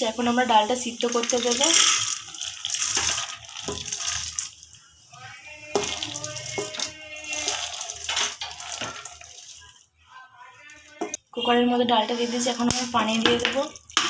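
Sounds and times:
lentils pattering into water: 0:01.0 - 0:04.8, 0:05.8 - 0:09.8, 0:12.7 - 0:14.0
lentils scraped from steel bowl: 0:01.6 - 0:04.4, 0:05.8 - 0:09.7, 0:12.0 - 0:13.1.

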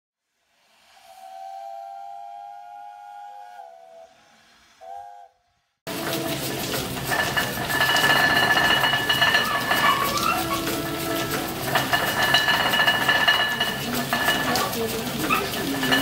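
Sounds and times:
steam hiss: 0:00.2 - 0:09.8
steam whistle: 0:00.3 - 0:06.3, 0:09.9 - 0:11.8
steam engine running: 0:05.9 - 0:16.0.

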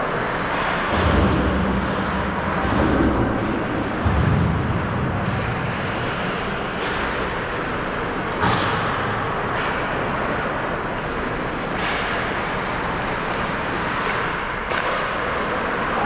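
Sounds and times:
sharp knocks from hockey play: 0:00.5 - 0:10.4, 0:11.6 - 0:15.6
skates on ice: 0:04.8 - 0:16.0.

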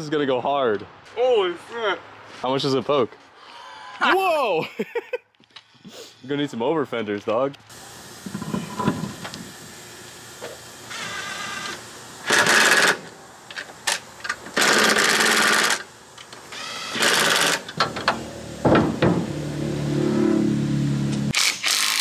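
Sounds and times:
impact wrench bursts: 0:10.4 - 0:19.1, 0:21.3 - 0:22.0.

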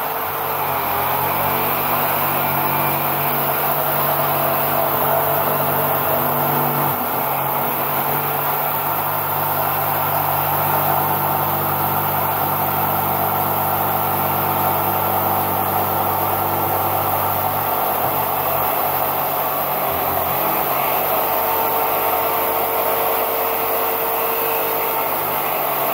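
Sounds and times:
jigsaw cutting foam board: 0:00.0 - 0:25.9.

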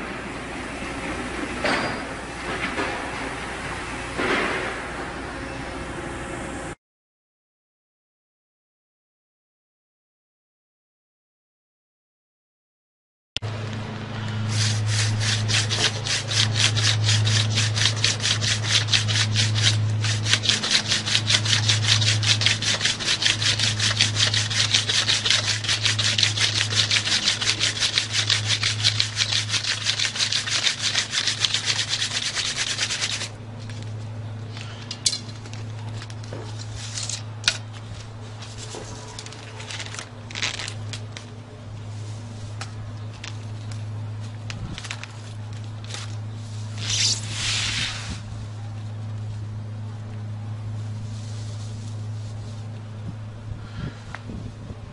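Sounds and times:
low hum: 0:13.4 - 0:54.9
wooden drill rubbing on fireboard: 0:14.4 - 0:33.4, 0:46.7 - 0:48.2.

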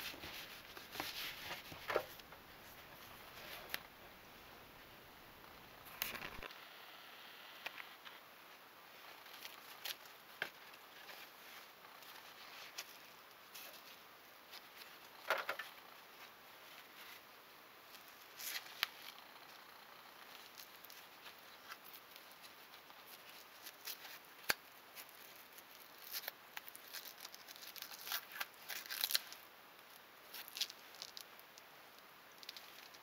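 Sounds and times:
hook-and-loop strap crackling: 0:30.3 - 0:31.6.

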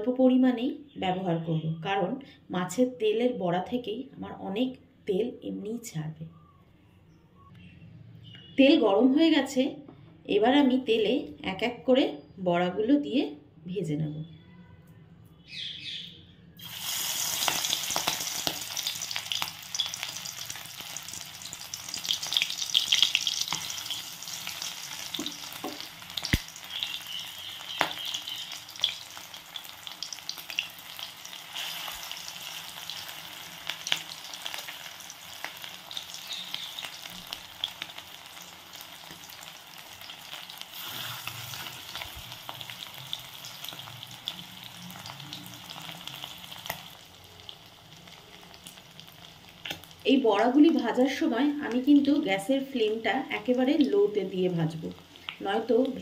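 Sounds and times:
fritters sizzling in hot oil: 0:16.6 - 0:52.2.

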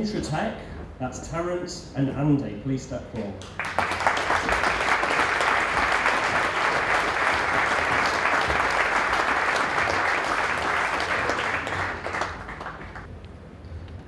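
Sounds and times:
audience applauding: 0:03.4 - 0:13.1.

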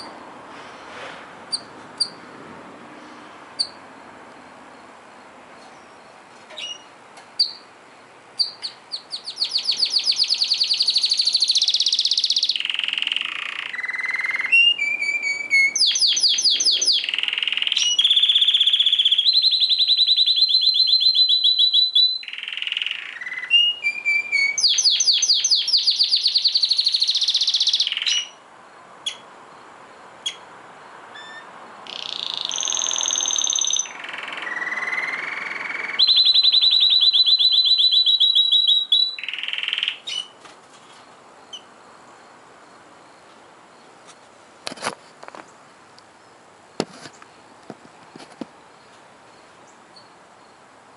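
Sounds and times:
canary singing trills: 0:01.5 - 0:02.3, 0:03.6 - 0:03.8, 0:05.6 - 0:07.7, 0:08.3 - 0:28.4, 0:29.0 - 0:30.5, 0:31.1 - 0:40.4, 0:41.4 - 0:43.8, 0:49.3 - 0:50.6.

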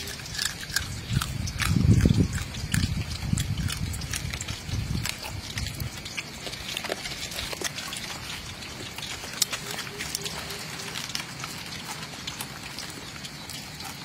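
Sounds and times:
person chewing crunchy food: 0:00.0 - 0:14.0.

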